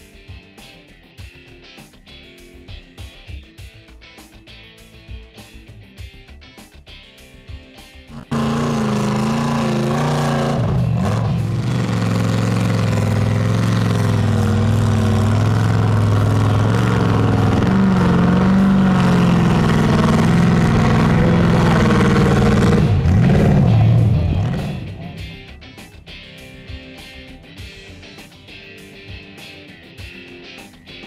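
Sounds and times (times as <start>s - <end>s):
tires churning through mud: 8.1s - 25.2s
truck engine revving high: 8.1s - 25.4s.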